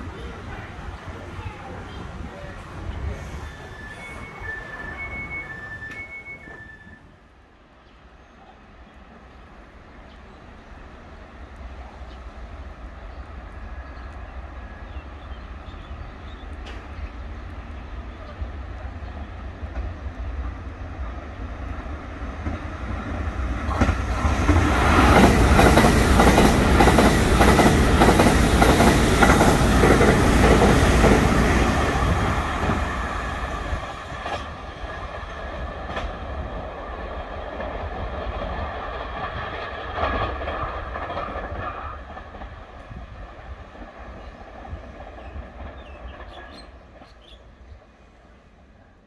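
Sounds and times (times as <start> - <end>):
electric train passing: 0.0 - 49.0
wheels clacking over rail joints: 19.6 - 43.0.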